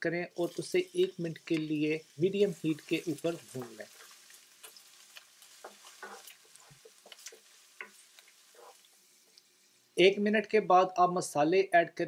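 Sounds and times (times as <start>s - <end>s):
food sizzling in oil: 0.0s - 10.3s
wooden spoon tapping and scraping pan: 2.7s - 8.8s.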